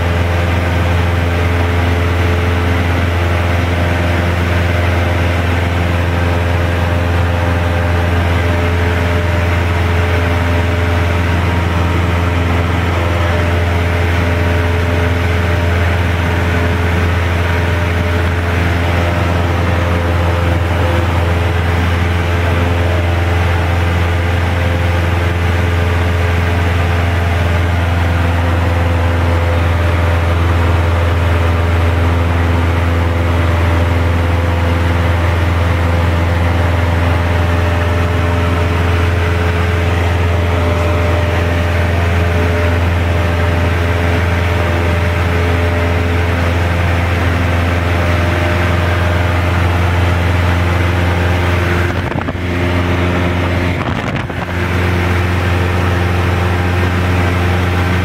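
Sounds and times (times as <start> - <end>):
aircraft engine drone in cabin: 0.0 - 58.0.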